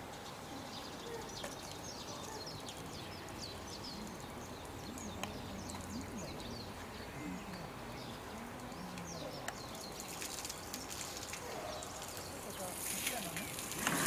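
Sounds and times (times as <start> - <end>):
small birds chirping: 0.0 - 14.0
faint voices: 3.7 - 14.0.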